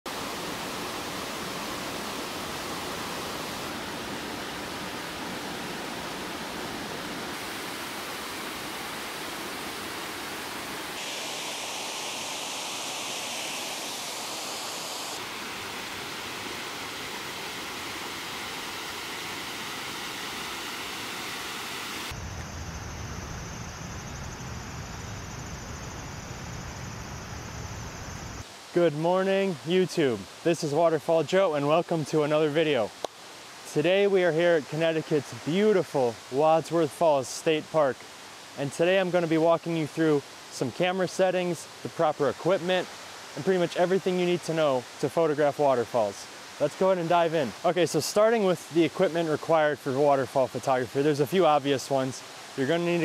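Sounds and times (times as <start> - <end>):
waterfall and rushing stream: 0.1 - 22.2, 24.4 - 53.0.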